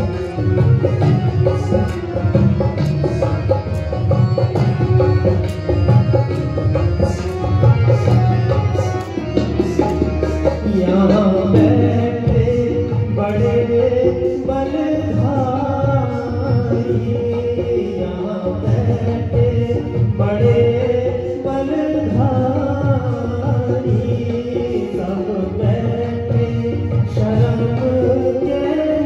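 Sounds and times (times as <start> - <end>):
hand drum beat: 0.0 - 17.9.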